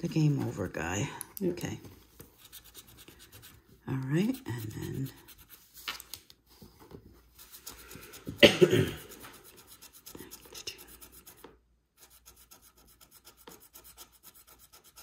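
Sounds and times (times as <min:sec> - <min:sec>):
scratch-off ticket being scratched: 0:02.4 - 0:06.0, 0:08.9 - 0:15.0.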